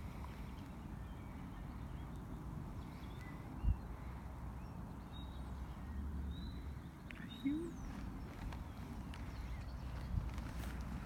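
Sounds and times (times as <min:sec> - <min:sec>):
wind rumble on microphone: 0:00.0 - 0:04.0, 0:05.9 - 0:11.0
faint bird calls: 0:06.4 - 0:10.2.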